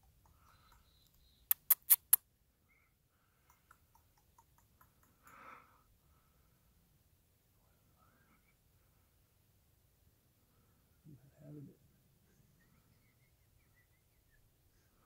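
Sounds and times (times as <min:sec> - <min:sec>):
faint ticks: 0:00.0 - 0:02.2, 0:03.4 - 0:05.6
sharp clicks: 0:00.2 - 0:02.2.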